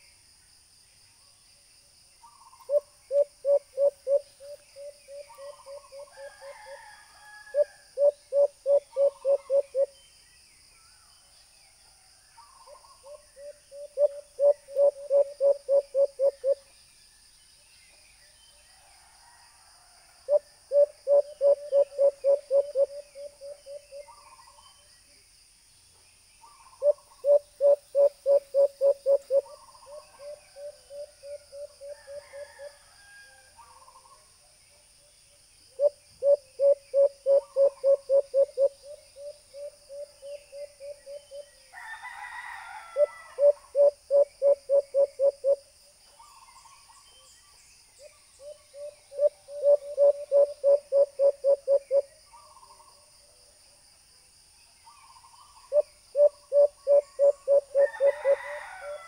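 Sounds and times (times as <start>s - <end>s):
dove hooting: 2.6s - 6.8s, 7.5s - 9.9s, 12.7s - 16.6s, 20.3s - 24.3s, 26.8s - 32.7s, 35.8s - 41.5s, 43.0s - 45.6s, 48.4s - 52.1s, 55.7s - 59.0s.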